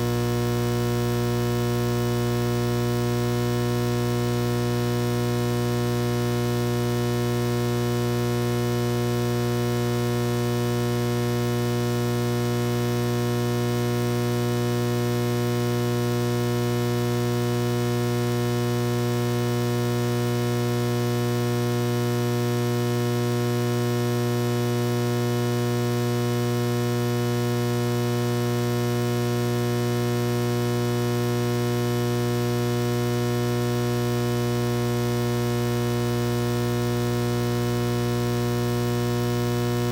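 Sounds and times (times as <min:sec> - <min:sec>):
electrical mains hum: 0:00.0 - 0:39.9.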